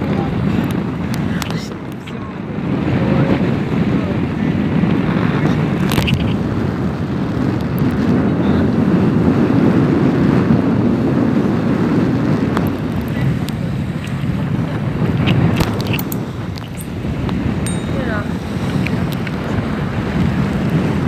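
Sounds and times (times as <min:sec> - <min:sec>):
water washing past hull: 0:00.0 - 0:21.0
wind buffeting microphone: 0:00.0 - 0:21.0.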